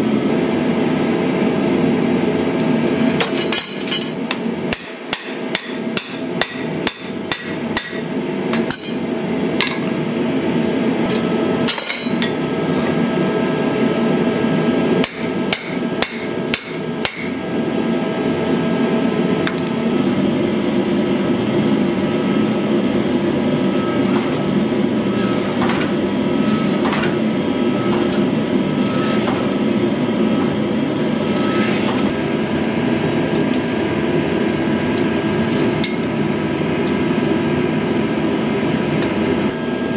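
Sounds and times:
forging machine drone: 0:00.0 - 0:39.9
hammer striking steel on anvil: 0:03.2 - 0:09.0, 0:11.1 - 0:12.3, 0:15.0 - 0:17.5.

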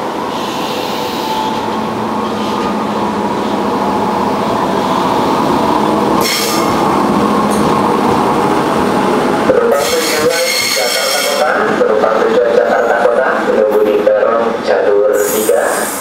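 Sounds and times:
electric train rumbling past: 0:00.0 - 0:16.0
high-pitched train squeal: 0:00.3 - 0:02.9, 0:06.2 - 0:06.8, 0:09.8 - 0:11.5.

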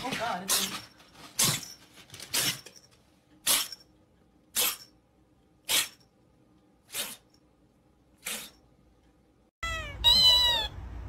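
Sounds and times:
kitten sneezing: 0:06.9 - 0:07.2, 0:08.2 - 0:08.6.

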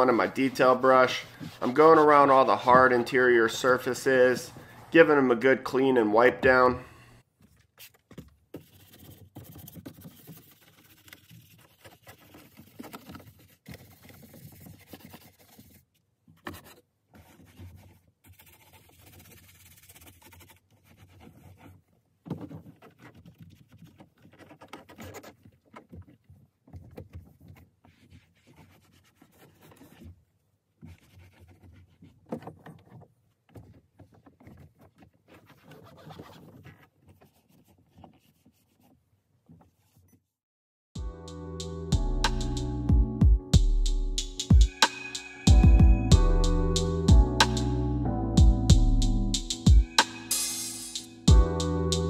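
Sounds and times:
towel rubbing plastic: 0:00.0 - 0:04.0, 0:07.8 - 0:40.1.

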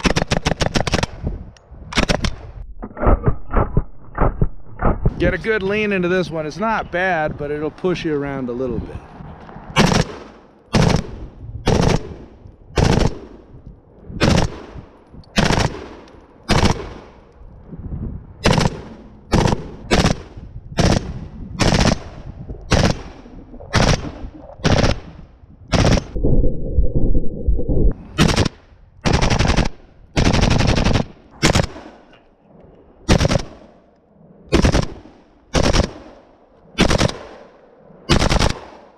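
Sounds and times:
rifle shots: 0:00.0 - 0:01.2, 0:02.0 - 0:02.5, 0:09.8 - 0:13.4, 0:14.2 - 0:17.2, 0:18.4 - 0:26.2, 0:28.2 - 0:32.1, 0:33.1 - 0:33.7, 0:34.5 - 0:36.2, 0:36.8 - 0:37.5, 0:38.1 - 0:38.9
steady lower sound: 0:20.5 - 0:28.2.

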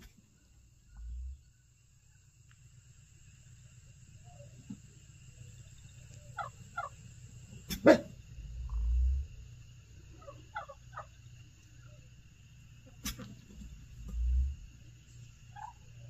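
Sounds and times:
distant animal calls: 0:00.0 - 0:01.7, 0:04.1 - 0:12.2, 0:12.8 - 0:16.0
low rumble: 0:00.6 - 0:01.7, 0:08.2 - 0:09.8, 0:13.6 - 0:15.4.

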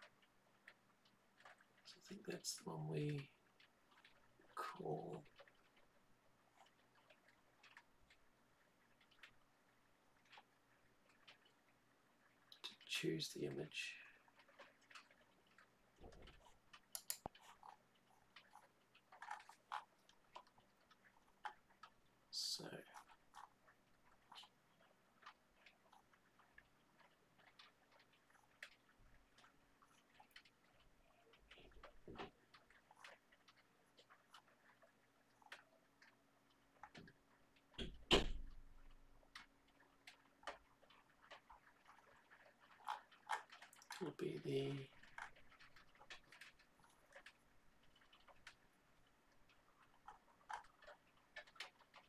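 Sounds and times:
mouse and keyboard clicks: 0:16.4 - 0:17.8.

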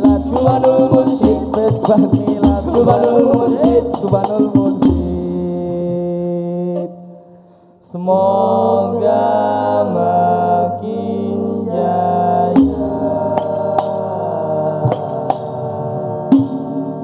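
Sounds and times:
group of men chanting in unison: 0:00.0 - 0:04.8, 0:08.0 - 0:17.0
hand-drum strikes: 0:00.0 - 0:05.4, 0:12.6 - 0:17.0.

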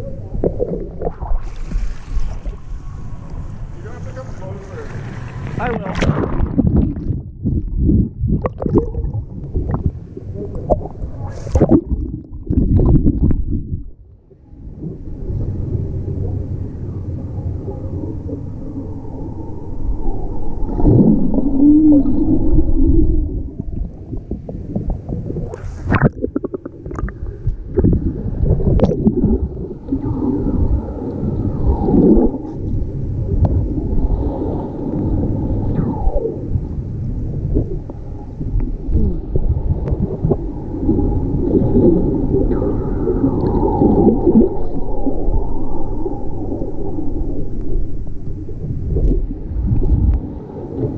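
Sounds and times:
muffled wavering tone: 0:00.0 - 0:04.2, 0:06.4 - 0:50.9
underwater water gurgle: 0:00.0 - 0:50.9.

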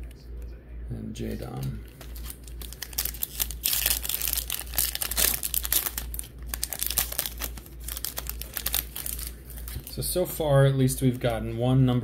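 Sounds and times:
foil wrapper crinkling and tearing: 0:01.9 - 0:10.0.

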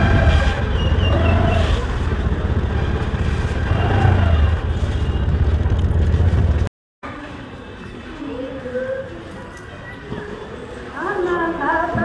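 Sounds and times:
motor scooter engine rumble: 0:00.0 - 0:06.7.

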